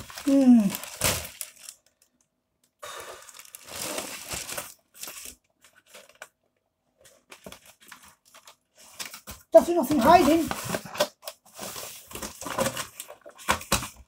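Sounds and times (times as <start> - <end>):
plastic bag crinkling: 0.0 - 2.3, 3.2 - 6.3.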